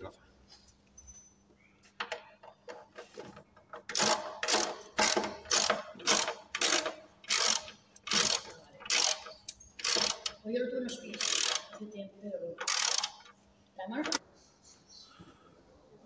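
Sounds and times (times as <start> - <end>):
ratchet wrench clicking: 3.9 - 11.8, 12.6 - 13.4.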